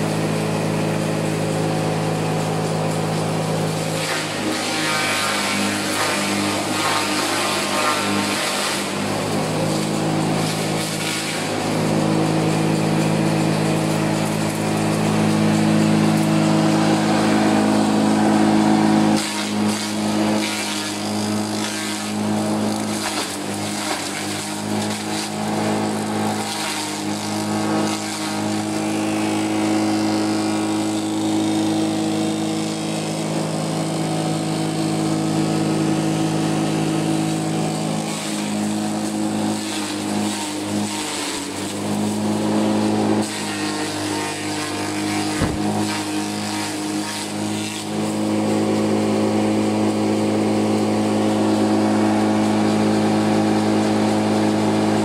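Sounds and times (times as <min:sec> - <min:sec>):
electric motor humming: 0:41.6 - 0:53.7
blades chopping stalks: 0:44.9 - 0:47.2.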